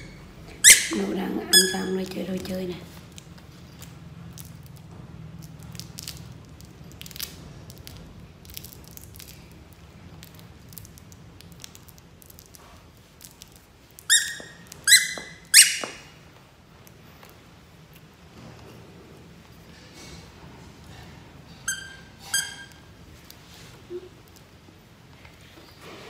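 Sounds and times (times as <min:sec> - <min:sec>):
baby monkey squeaking: 0:00.0 - 0:02.0, 0:14.1 - 0:16.0, 0:21.7 - 0:22.8
plush toys rustling and clicking: 0:01.7 - 0:18.8.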